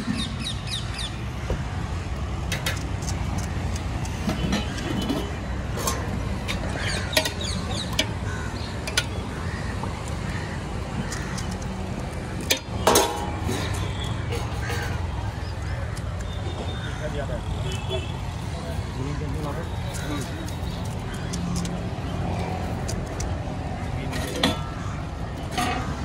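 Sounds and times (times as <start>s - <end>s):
road traffic rumble: 0.0s - 26.0s
steel utensils clinking: 12.4s - 15.1s.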